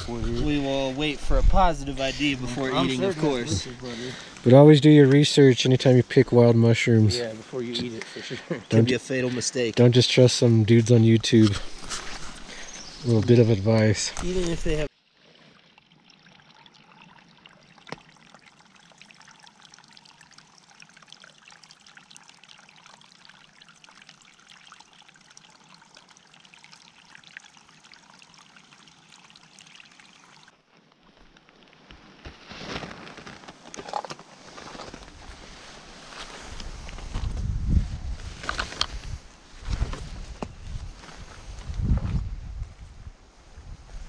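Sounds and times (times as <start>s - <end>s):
water trickling: 0.1s - 32.2s.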